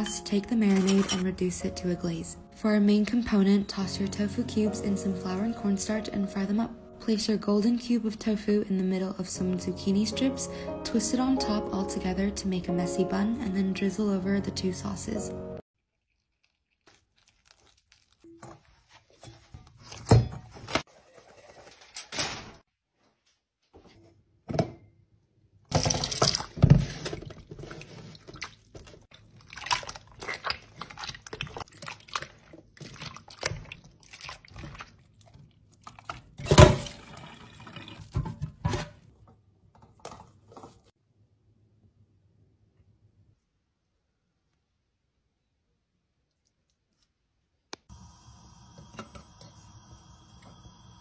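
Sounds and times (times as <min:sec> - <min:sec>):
dough squelching in water: 0:15.8 - 0:21.7, 0:25.8 - 0:38.5
water splashes: 0:27.6 - 0:38.2.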